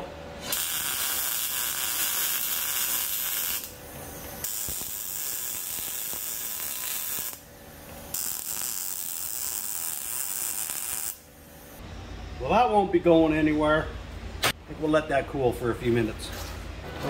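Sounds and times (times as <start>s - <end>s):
welder arc hissing: 0.4s - 11.8s.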